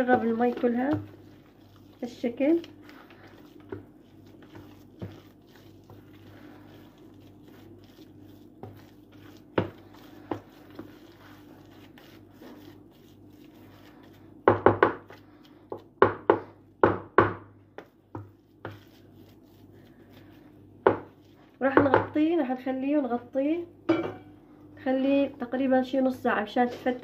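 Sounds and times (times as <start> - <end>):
spoon stirring damp grain mix: 0.0 - 16.6, 17.8 - 22.3.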